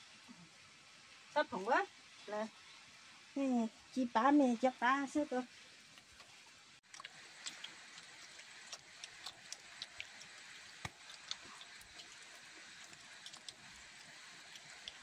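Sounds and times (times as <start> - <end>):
light steady hiss: 0.0 - 15.0
sharp ticks and clicks: 6.9 - 15.0.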